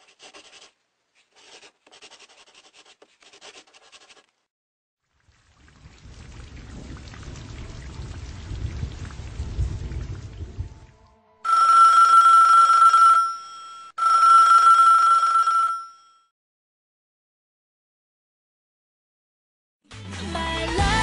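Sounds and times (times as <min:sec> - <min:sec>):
rain and thunder rumble: 0:05.1 - 0:11.1
telephone ringing: 0:11.4 - 0:16.3.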